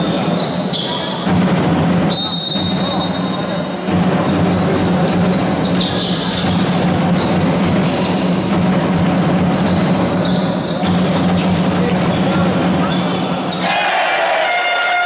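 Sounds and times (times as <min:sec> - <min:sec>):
echoing din in sports hall: 0:00.0 - 0:15.0
basketball bouncing on court: 0:01.2 - 0:03.2, 0:03.9 - 0:13.1.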